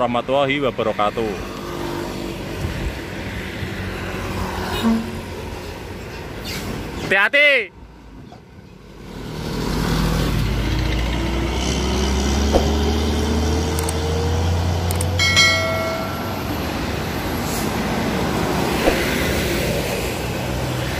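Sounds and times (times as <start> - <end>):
traffic noise: 0.0 - 20.9
truck engine accelerating: 9.1 - 20.9
brief high tone: 15.2 - 16.8.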